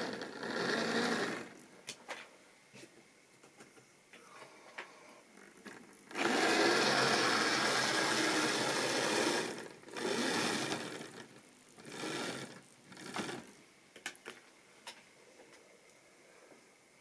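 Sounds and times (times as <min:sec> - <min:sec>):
model train motor whirring: 0:00.0 - 0:01.6, 0:05.6 - 0:13.5.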